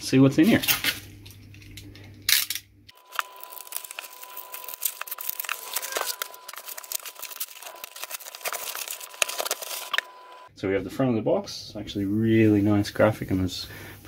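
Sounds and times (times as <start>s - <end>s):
bubble wrap crinkling: 0.6s - 10.5s.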